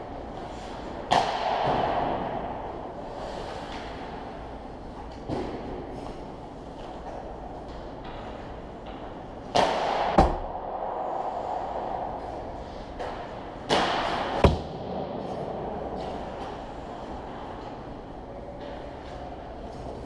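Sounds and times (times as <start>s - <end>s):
echoing rink hum: 0.0s - 20.0s
puck striking with a thud: 1.1s - 2.7s, 8.8s - 10.7s, 13.0s - 15.2s.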